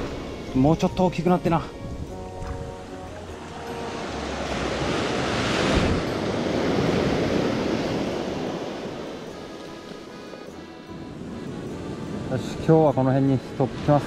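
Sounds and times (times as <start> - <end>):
ocean surf breaking on beach: 3.1 - 14.0.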